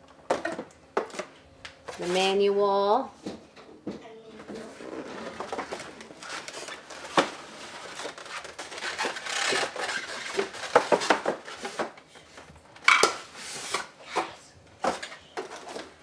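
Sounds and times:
foam and cardboard rustling: 4.5s - 12.0s.

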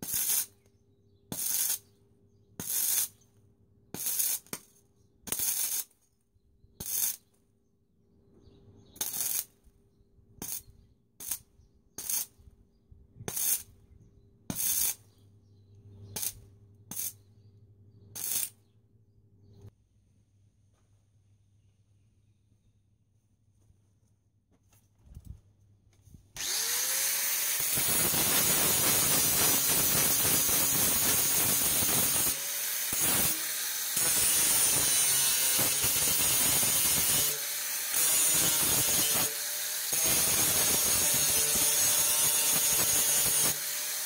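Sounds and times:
welding arc crackling bursts: 0.0s - 0.6s, 1.3s - 1.9s, 2.6s - 3.2s, 4.0s - 4.6s, 5.3s - 5.9s, 6.8s - 7.2s, 9.0s - 9.6s, 10.4s - 10.6s, 11.2s - 11.4s, 12.0s - 12.4s, 13.3s - 13.7s, 14.5s - 15.0s, 16.2s - 17.2s, 18.2s - 18.6s, 26.4s - 44.0s.

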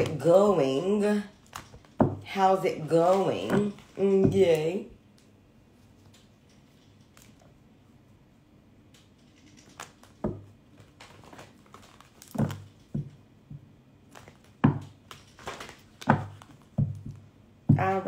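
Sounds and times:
cards shuffled by hand: 9.2s - 13.1s, 14.1s - 16.7s.

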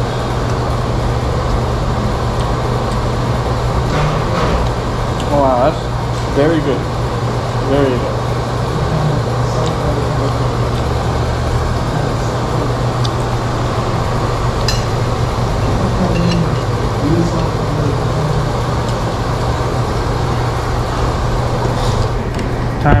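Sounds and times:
ventilation fans humming: 0.0s - 23.0s
spoon clinking against bowl: 14.6s - 17.6s.

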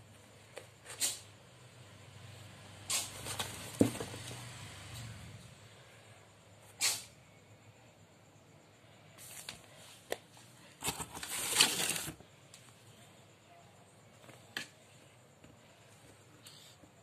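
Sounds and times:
cardboard box rustling and scraping: 3.1s - 4.4s, 10.8s - 12.2s.

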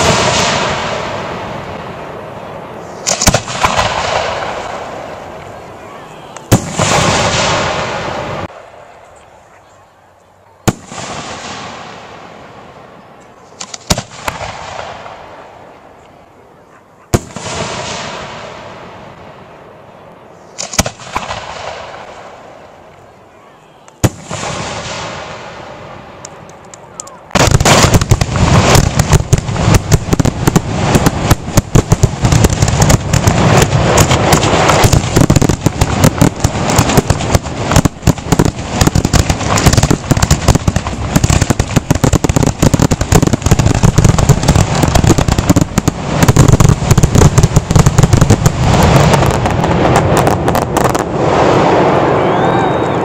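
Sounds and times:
firework crackle: 0.0s - 9.2s, 10.6s - 16.0s, 20.4s - 22.9s, 23.9s - 53.0s
firework shells bursting: 3.0s - 4.6s, 26.2s - 51.0s.

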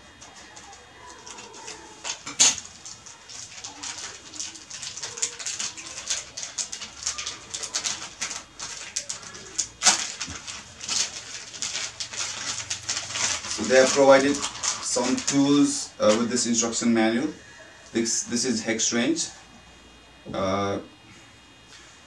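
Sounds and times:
paper and plastic bag rustling: 0.0s - 16.8s.

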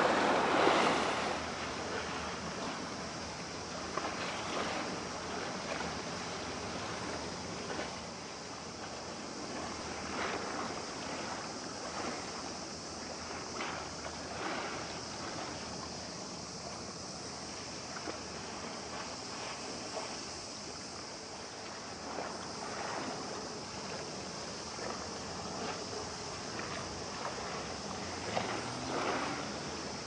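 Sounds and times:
soft splashes: 0.0s - 2.9s, 21.2s - 30.0s
water rushing: 0.0s - 30.0s
wind: 0.0s - 30.0s.

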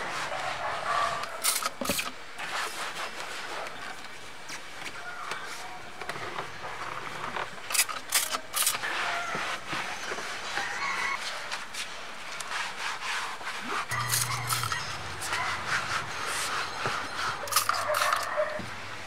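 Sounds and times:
spray bottle squirts: 1.4s - 2.1s, 13.6s - 14.8s, 17.4s - 18.5s.

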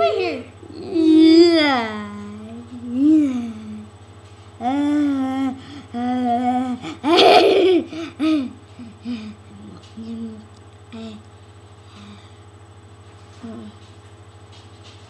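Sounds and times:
child laughing: 0.0s - 0.5s, 4.7s - 9.2s
child making wavering vocal sounds: 0.0s - 3.9s, 4.6s - 7.2s
steady low buzz: 0.0s - 15.0s.

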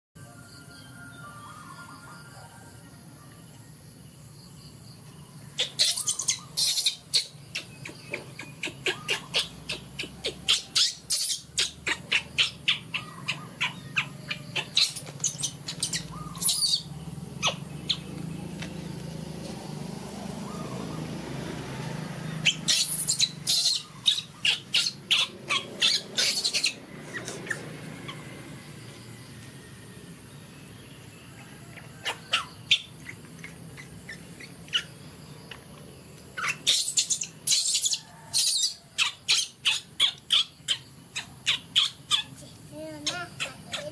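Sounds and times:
monkeys squeaking calls: 5.6s - 18.3s, 22.4s - 28.4s, 31.8s - 35.7s, 36.3s - 43.9s.

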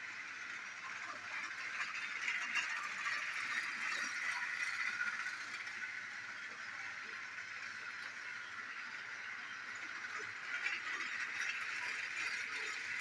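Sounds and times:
toy train motor whirring: 0.0s - 13.0s
wheels rattling on plastic track: 0.0s - 13.0s.

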